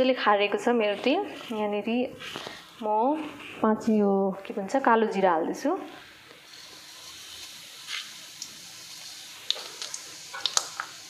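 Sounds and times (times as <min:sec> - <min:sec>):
oil frying hiss: 0:05.4 - 0:11.0
seeds popping and crackling: 0:09.4 - 0:11.0.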